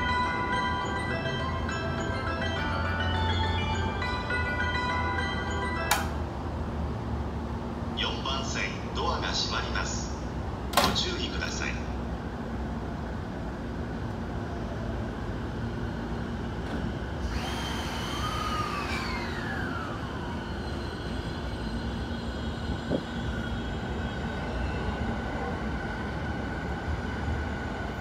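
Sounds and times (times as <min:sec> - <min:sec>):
electric train rumbling: 0:00.0 - 0:28.0
train motor whine: 0:16.2 - 0:25.4.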